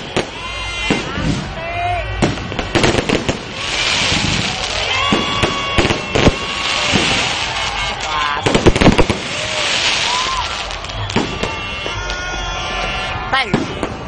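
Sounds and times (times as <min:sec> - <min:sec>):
firework bangs: 0:00.0 - 0:14.0
crackle and hiss of sparks: 0:02.7 - 0:11.4.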